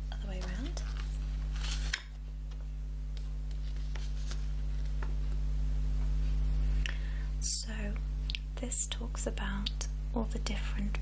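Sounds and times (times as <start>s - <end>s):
low electrical hum: 0.0s - 11.0s
paper leaflet rustling: 0.4s - 2.6s, 3.2s - 5.3s.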